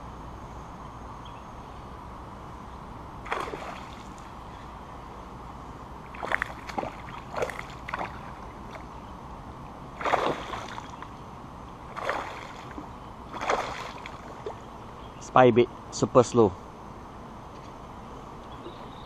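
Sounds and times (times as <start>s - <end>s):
fish splashing in water: 3.2s - 4.4s, 6.1s - 8.9s, 10.0s - 11.0s, 11.9s - 14.7s.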